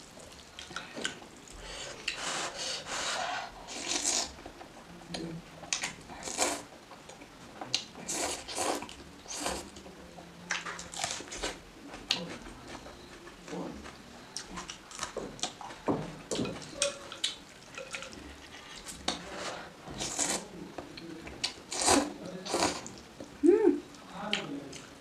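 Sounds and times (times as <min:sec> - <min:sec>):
chewing: 0:00.2 - 0:02.2, 0:10.5 - 0:19.3
noodles slurped: 0:03.7 - 0:04.4, 0:21.7 - 0:23.0.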